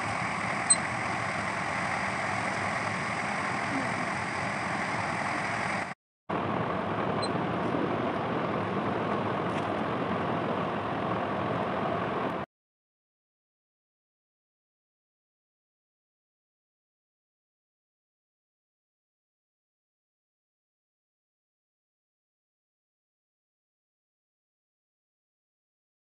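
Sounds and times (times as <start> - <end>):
machine hum and hiss: 0.0 - 12.5.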